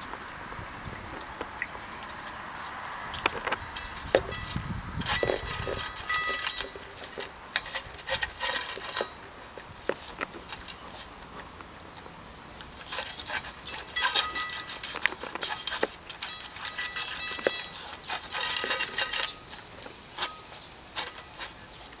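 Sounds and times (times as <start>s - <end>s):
metal bowl clattering on gravel: 1.1s - 22.0s.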